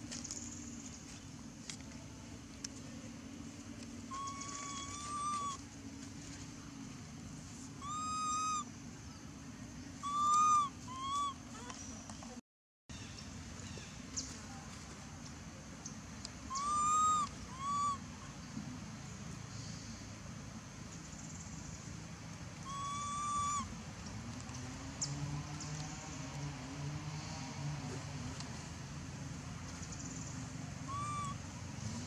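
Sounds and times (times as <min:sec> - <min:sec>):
infant monkey cooing: 0:04.1 - 0:05.6, 0:07.8 - 0:08.7, 0:10.0 - 0:11.7, 0:16.5 - 0:18.0, 0:22.6 - 0:23.7, 0:30.8 - 0:31.5.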